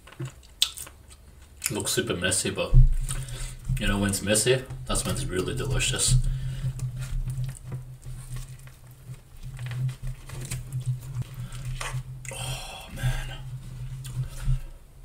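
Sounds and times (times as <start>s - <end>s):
steady low hum: 2.5s - 15.0s
plastic fork scraping food: 3.0s - 12.2s.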